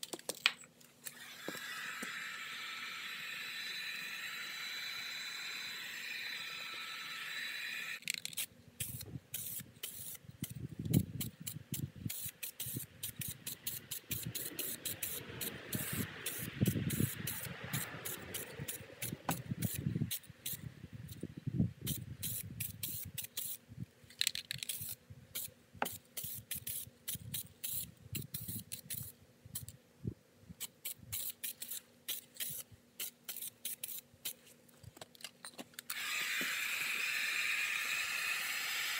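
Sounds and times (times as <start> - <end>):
spray paint can bursts: 1.2 - 20.6, 21.9 - 23.6, 24.6 - 29.1, 30.6 - 34.4, 35.9 - 38.9.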